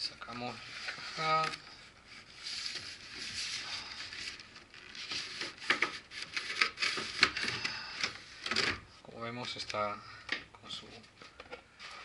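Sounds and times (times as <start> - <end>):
cardboard scraping and rubbing: 0.4 - 7.4.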